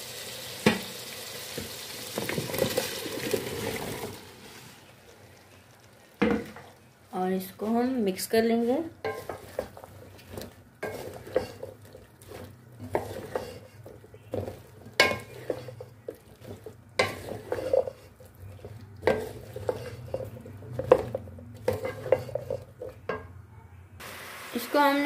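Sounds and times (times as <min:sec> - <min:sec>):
wooden spatula scraping metal pan: 0:08.1 - 0:23.2.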